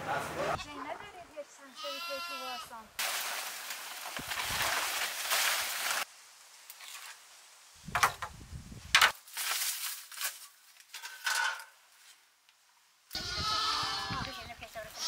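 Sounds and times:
dry leaves rustling: 2.1 - 7.5, 9.0 - 12.3
broom brushing dirt: 3.0 - 6.1, 9.2 - 10.9.

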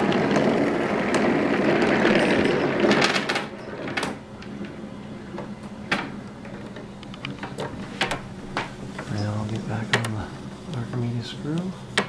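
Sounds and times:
marbles rolling on track: 0.0 - 4.8
faint steady hum: 0.0 - 12.0.

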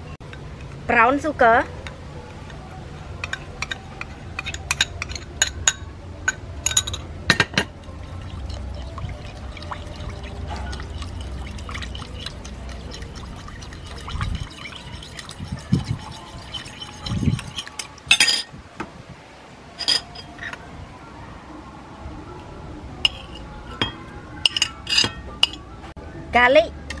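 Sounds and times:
spoon stirring mixture: 0.3 - 5.6, 7.7 - 18.1
metal spoon clinking on bowl: 3.2 - 18.5
liquid pouring into bowl: 7.8 - 18.0.

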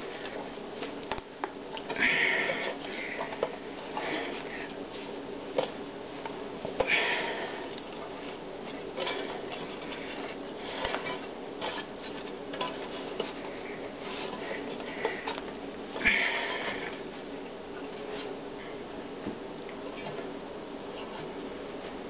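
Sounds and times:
metal pan clicking and creaking: 9.0 - 10.0.

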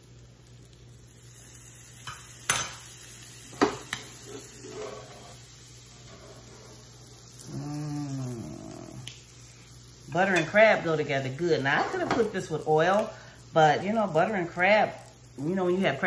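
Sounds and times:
butter sizzling: 0.0 - 16.0
metal utensils clinking on skillet: 2.0 - 2.9, 10.2 - 10.8, 11.5 - 13.8.

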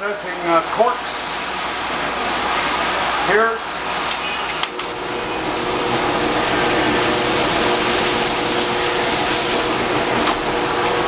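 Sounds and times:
dust extraction whir: 4.7 - 11.0.

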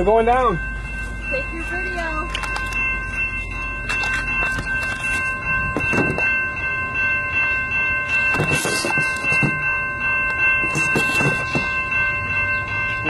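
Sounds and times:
crossing signal bell ringing: 0.0 - 13.0.

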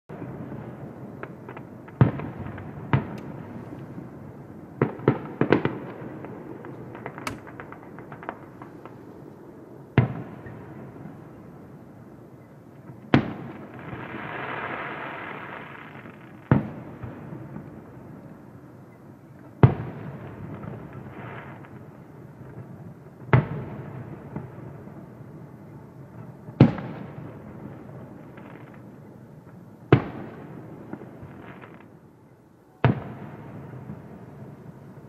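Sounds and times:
fireworks bursting with bangs: 0.1 - 12.0, 12.7 - 18.6, 19.3 - 32.0, 32.8 - 35.0
firework hiss: 13.6 - 16.6.

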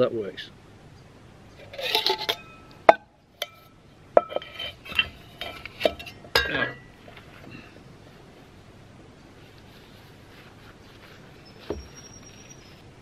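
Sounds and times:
metal pot scraping: 1.6 - 2.7, 3.4 - 7.5
metal pot and cup clinking: 1.6 - 7.0.

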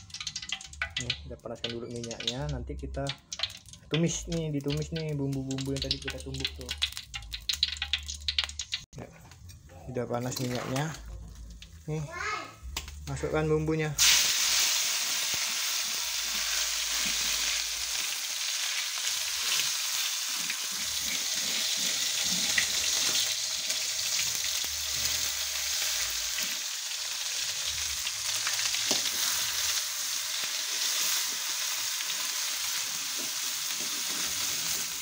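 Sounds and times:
paste sizzling in hot oil: 14.0 - 35.0
spatula stirring: 20.3 - 23.2.

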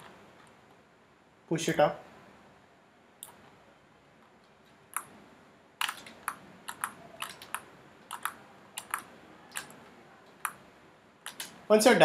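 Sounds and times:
keyboard and mouse clicks: 3.2 - 3.6, 4.2 - 5.2, 5.8 - 11.6.

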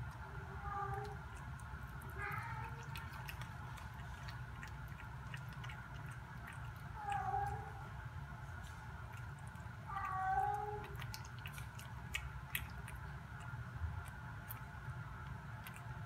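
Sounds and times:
steady low hum: 0.0 - 16.0
cat meowing: 9.9 - 11.0.

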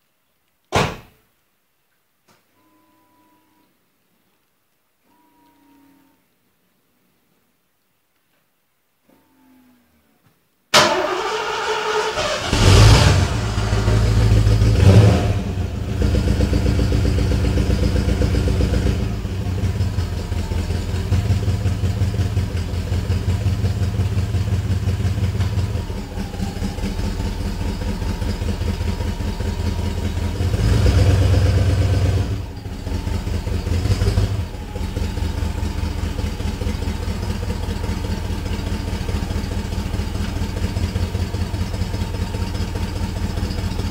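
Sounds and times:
car engine starting: 10.7 - 43.9
car engine idling: 10.8 - 43.9
car engine revving: 11.0 - 43.9.

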